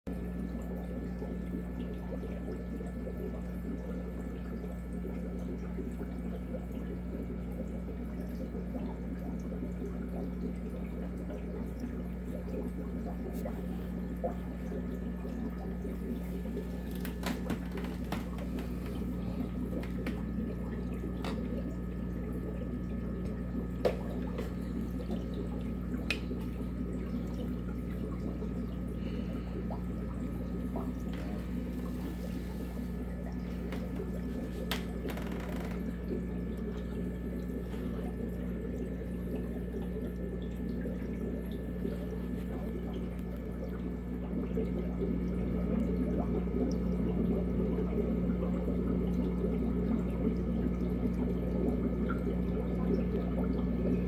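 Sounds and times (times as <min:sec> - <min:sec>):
low equipment hum: 0:00.1 - 0:54.0
water bubbling and dripping: 0:00.1 - 0:54.0.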